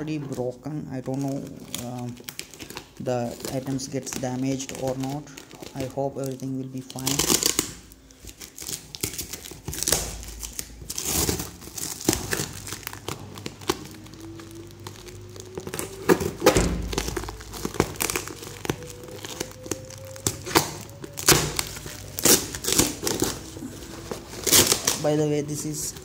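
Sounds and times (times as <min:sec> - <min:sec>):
packing tape tearing off cardboard: 0:01.0 - 0:26.0.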